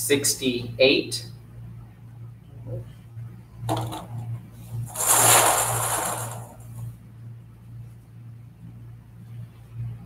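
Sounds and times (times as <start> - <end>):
balls rattling in a metal drum: 4.9 - 6.9.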